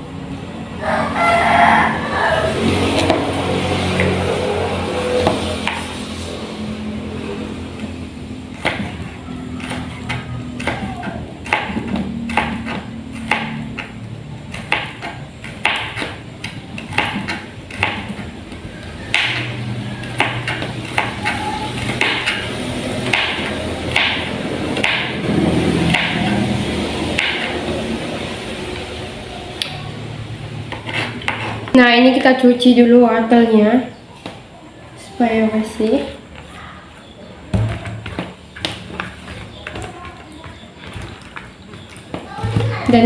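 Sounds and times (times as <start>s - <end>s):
knife chopping on plastic board: 8.5s - 25.2s, 25.9s - 26.3s, 27.1s - 27.6s, 37.5s - 43.0s.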